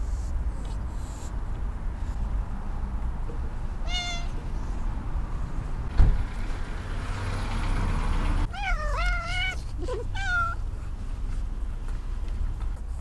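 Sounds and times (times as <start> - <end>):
cat meowing: 3.8 - 4.4, 8.5 - 10.6.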